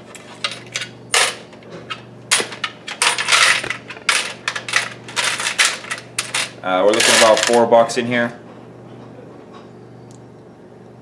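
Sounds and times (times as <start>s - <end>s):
coins clinking and sliding: 2.3s - 7.6s.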